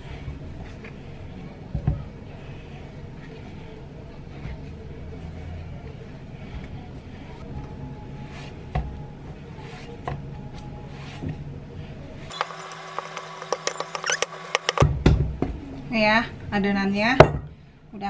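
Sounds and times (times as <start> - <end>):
hand kneading dough: 0.0 - 11.5.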